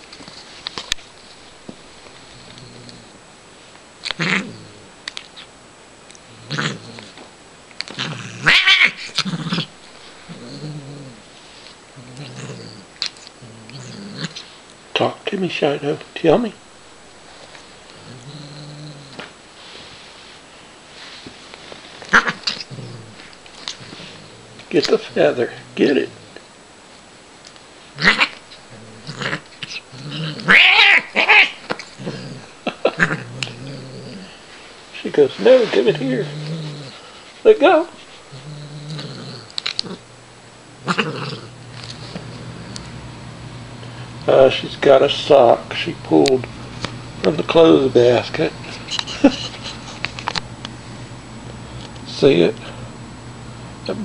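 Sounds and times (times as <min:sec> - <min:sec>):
cat yowling: 0:08.4 - 0:09.1, 0:30.1 - 0:31.6.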